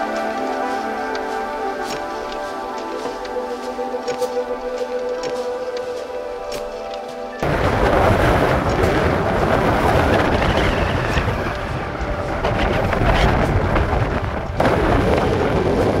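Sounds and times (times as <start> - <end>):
boots crunching on stony path: 0.0 - 9.6
wind buffeting microphone: 0.0 - 16.0.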